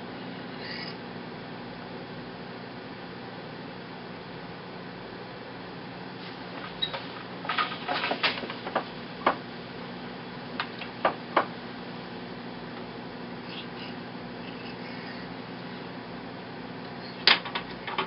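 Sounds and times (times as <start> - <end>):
steady low hum: 0.0 - 18.0
wooden loom knocking and rattling: 7.5 - 9.4.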